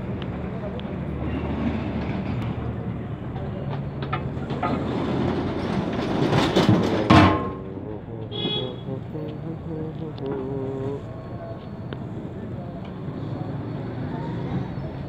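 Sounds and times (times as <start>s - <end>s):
street market background noise: 0.0s - 15.0s
metal lid scraping and clanging: 4.6s - 7.7s.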